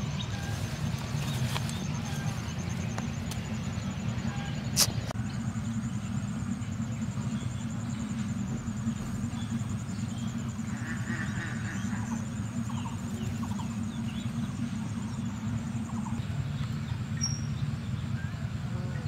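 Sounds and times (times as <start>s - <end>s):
small birds chirping: 0.0s - 19.0s
steady low rumble: 0.0s - 19.0s.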